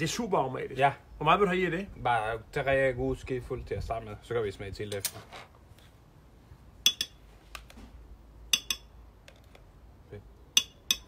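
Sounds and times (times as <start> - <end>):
spoon clinking against containers: 6.9 - 7.2, 8.5 - 9.0, 10.6 - 11.0.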